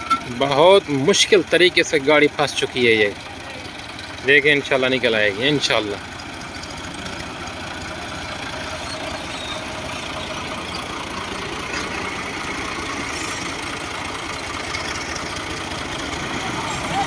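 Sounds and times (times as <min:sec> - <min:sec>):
diesel tractor engines running: 0:00.0 - 0:17.0.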